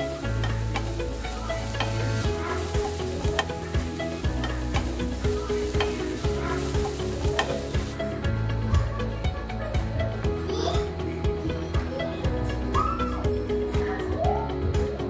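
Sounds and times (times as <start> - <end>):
mussels sizzling in oil: 0.0 - 8.2.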